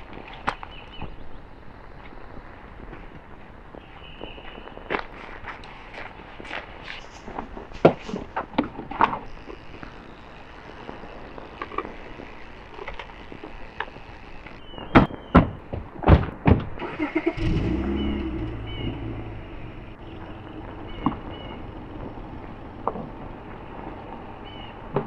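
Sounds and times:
car engine starting and idling: 0:16.8 - 0:24.2.

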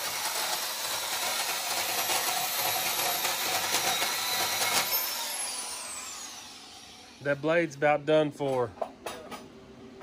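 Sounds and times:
saw blade cutting metal: 0:00.0 - 0:07.4.

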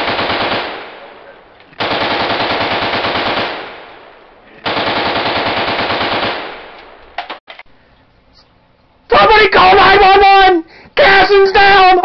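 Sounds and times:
machine-gun fire bursts: 0:00.0 - 0:07.4.

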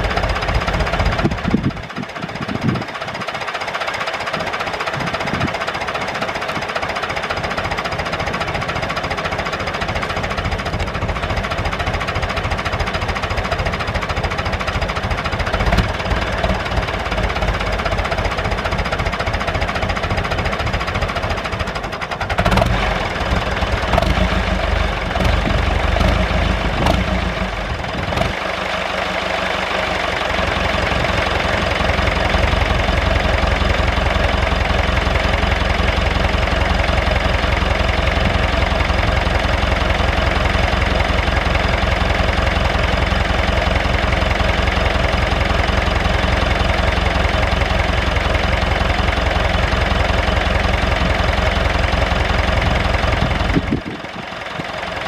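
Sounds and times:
tractor diesel engine idling: 0:00.0 - 0:55.0
wind rumbling on microphone: 0:01.1 - 0:03.2, 0:53.2 - 0:54.2.

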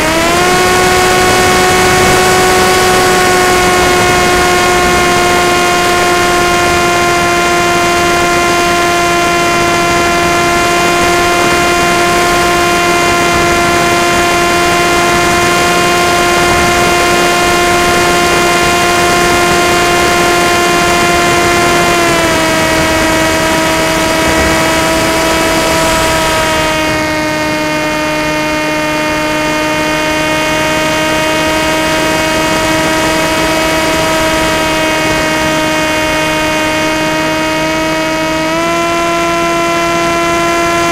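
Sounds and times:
model plane motor whine: 0:00.0 - 0:40.9
wind rushing: 0:16.0 - 0:27.8.

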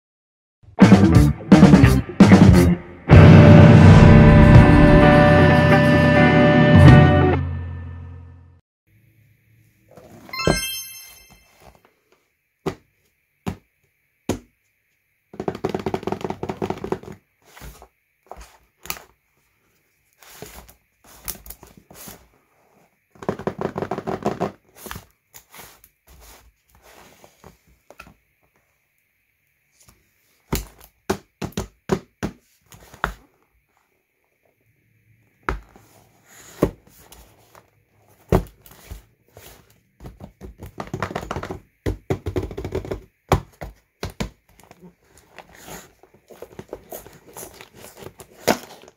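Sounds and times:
taps and knocks on cardboard box: 0:30.5 - 0:32.4, 0:40.0 - 0:44.6
rubbing and crinkling wrappers: 0:44.4 - 0:48.9.

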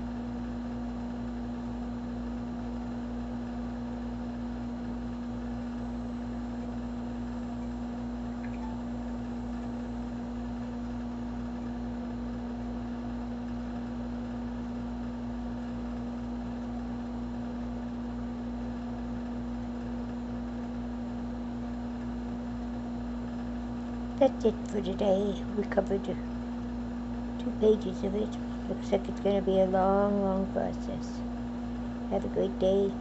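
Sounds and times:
steady hum: 0:02.8 - 0:15.4, 0:19.4 - 0:33.0.

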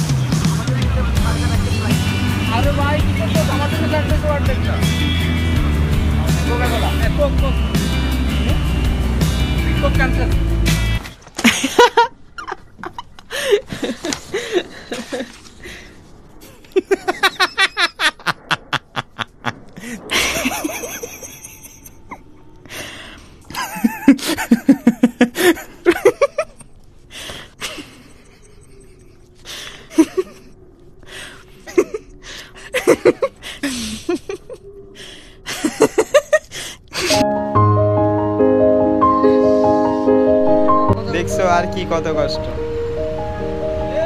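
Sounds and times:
hearty laughter: 0:11.4 - 0:15.6, 0:16.4 - 0:22.4, 0:23.5 - 0:26.8, 0:27.6 - 0:30.5, 0:31.6 - 0:34.7, 0:35.4 - 0:37.2.

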